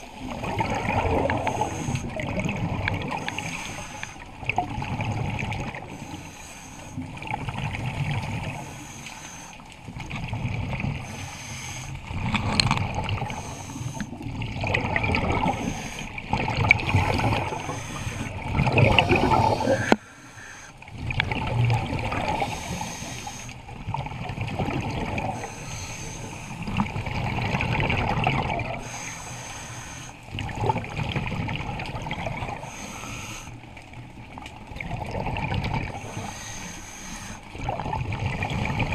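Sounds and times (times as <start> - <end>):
gurgling exhaled bubbles: 0.0 - 6.1, 6.9 - 8.9, 9.9 - 38.9
diver breathing through regulator: 0.7 - 2.4, 3.1 - 4.3, 5.8 - 7.1, 8.2 - 9.7, 11.0 - 14.2, 15.2 - 21.0, 22.1 - 23.6, 25.1 - 26.8, 28.7 - 30.4, 32.5 - 33.7, 35.8 - 37.6.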